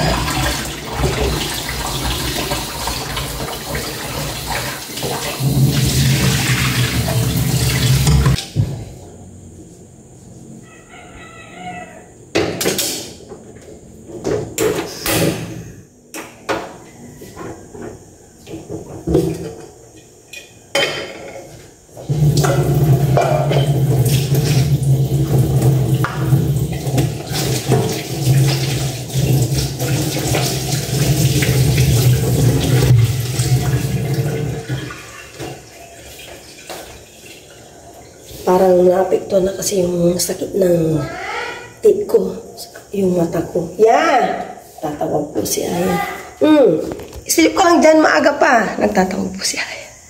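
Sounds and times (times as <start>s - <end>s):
tap running into sink: 0.0s - 8.4s
pots and utensils clattering: 17.4s - 38.4s.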